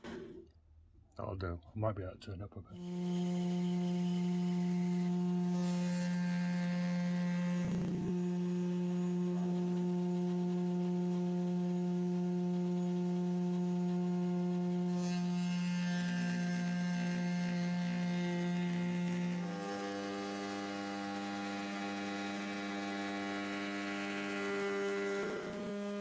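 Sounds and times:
cutter hissing through wood: 2.8 - 9.8, 12.6 - 26.0
router motor humming: 2.8 - 26.0.

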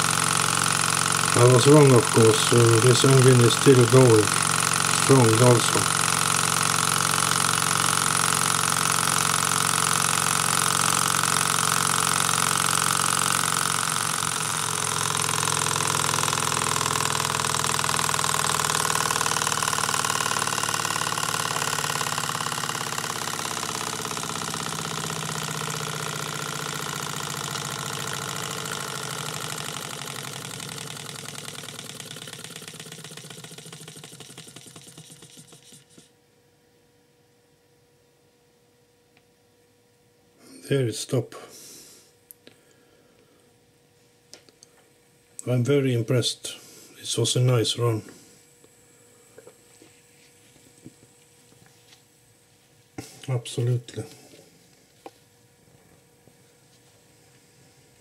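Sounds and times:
small engine running: 0.0 - 36.1.

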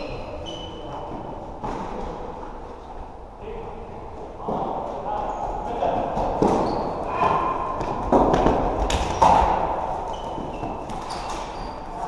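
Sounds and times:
shoe squeaks: 0.0 - 1.4, 6.4 - 7.5, 10.0 - 12.0.

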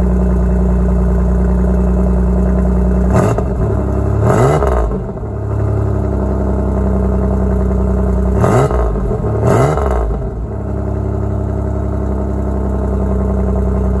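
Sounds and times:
car engine idling and revving: 0.0 - 14.0.

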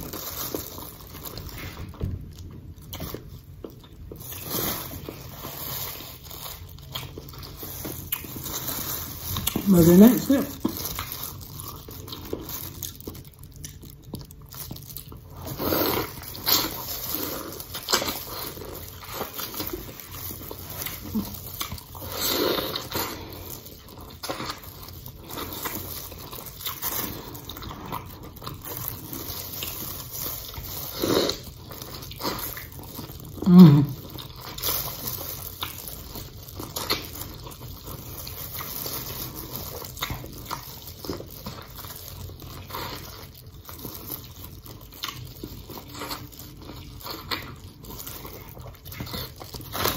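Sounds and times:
wet chewing and lip-smacking: 6.6 - 8.6, 34.0 - 49.9
low hum of voice: 33.4 - 34.0.

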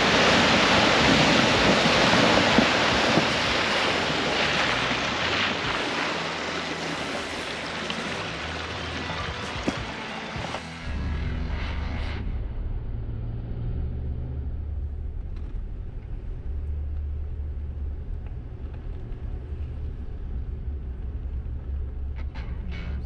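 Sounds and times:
engine and tyres rumbling: 0.0 - 23.0.

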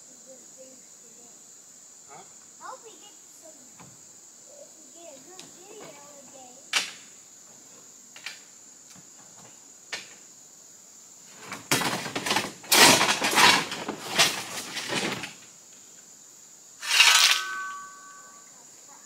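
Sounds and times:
rocks clattering and scraping: 11.5 - 15.4.

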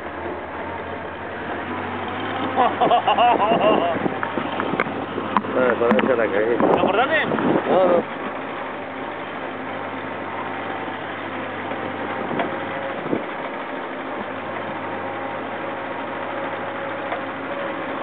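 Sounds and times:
car engine hum: 0.0 - 18.0
road noise: 0.0 - 18.0.

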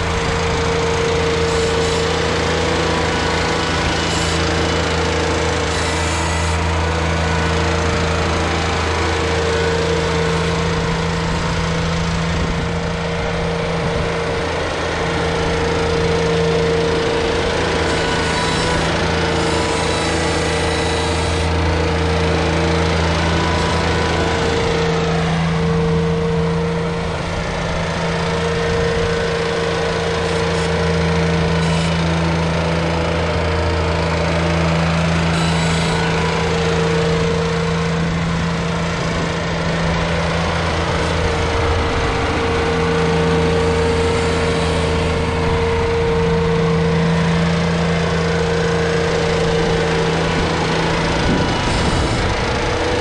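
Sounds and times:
tractor engine running steadily: 0.0 - 53.0.

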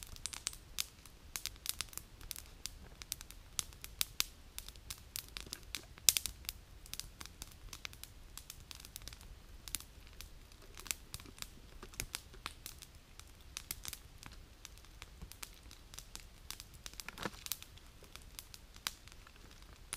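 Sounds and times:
campfire crackling and popping: 0.0 - 19.9.

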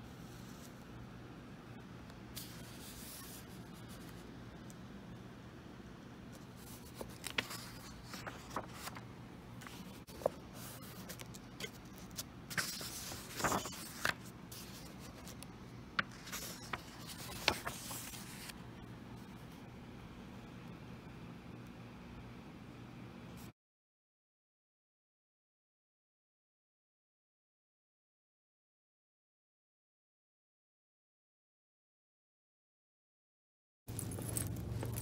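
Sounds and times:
book pages turning: 2.4 - 4.2, 6.4 - 9.0, 9.6 - 18.6, 34.0 - 35.0
paper rustling: 2.4 - 4.2, 6.4 - 9.0, 9.6 - 18.6, 33.9 - 35.0.

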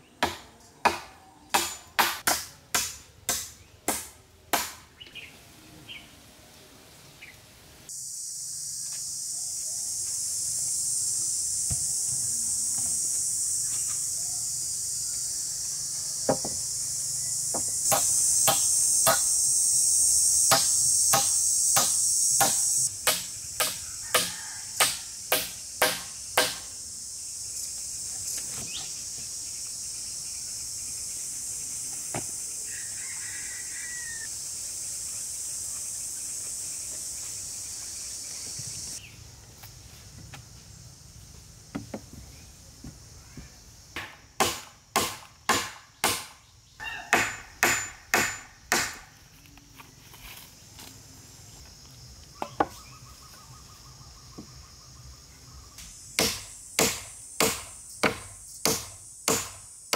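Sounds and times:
sharp strikes on wood: 0.2 - 4.9, 16.3 - 16.6, 17.5 - 19.3, 20.5 - 26.7, 44.0 - 46.4, 47.1 - 49.1, 56.2 - 59.7
high-pitched insect chorus: 7.1 - 59.9.

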